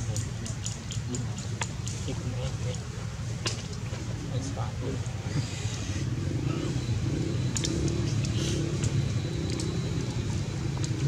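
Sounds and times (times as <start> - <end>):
vehicle engine running: 0.0 - 11.0
faint sharp clicks: 7.5 - 10.2.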